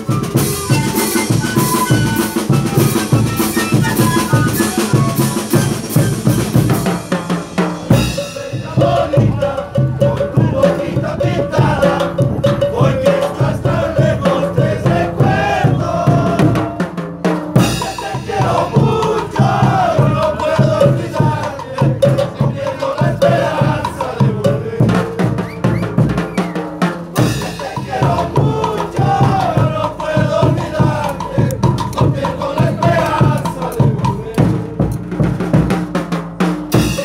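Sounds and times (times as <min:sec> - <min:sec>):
panpipes playing a melody: 0:00.0 - 0:07.1
bass drums snare and cymbal: 0:00.0 - 0:37.0.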